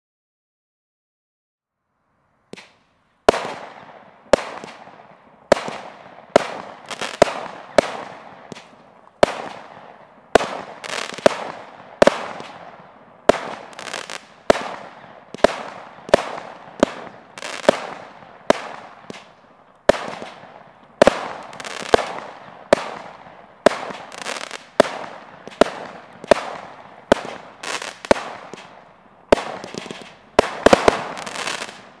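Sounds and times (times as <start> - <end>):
firework bangs: 2.5 - 32.0
firework stars crackling: 2.5 - 32.0.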